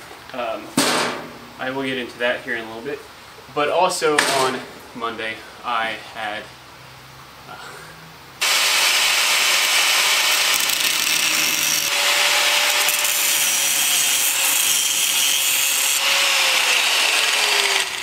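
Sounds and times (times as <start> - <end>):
angle grinder grinding steel: 8.4 - 18.0.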